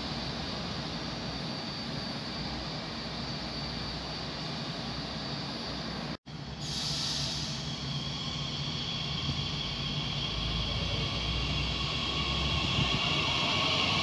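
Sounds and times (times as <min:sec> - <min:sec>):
high whine of traction motors: 0:00.0 - 0:14.0
train hissing: 0:00.0 - 0:14.0
station background rumble: 0:07.6 - 0:14.0.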